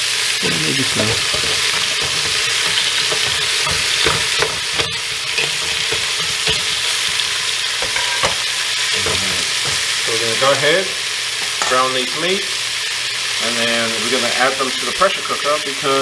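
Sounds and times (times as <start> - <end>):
meat sizzling in hot oil: 0.0 - 16.0.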